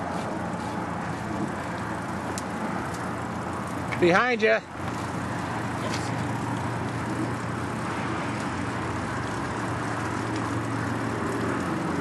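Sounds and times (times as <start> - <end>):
bicycle rolling noise: 0.0 - 12.0
constant low hum: 0.0 - 12.0
highway traffic rushing: 0.0 - 12.0
wind: 0.0 - 12.0.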